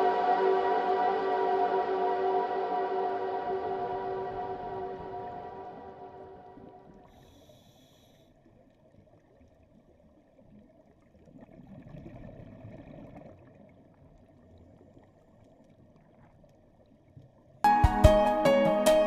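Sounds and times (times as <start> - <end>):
muffled underwater ambience: 0.0 - 17.6
bubbly water noise: 8.5 - 17.6.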